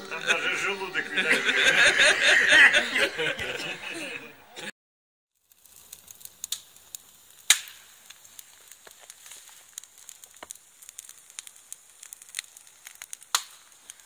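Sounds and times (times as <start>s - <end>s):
bonfire crackling: 0.0s - 4.7s, 5.3s - 14.0s
sharp pops of fire: 5.4s - 14.0s.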